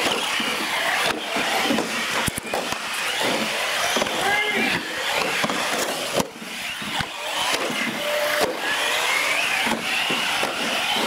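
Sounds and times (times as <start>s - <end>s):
sharp knocks: 0.0s - 4.2s, 9.6s - 11.0s
toy truck motors whining: 0.0s - 11.0s
tyre noise on concrete: 0.0s - 11.0s.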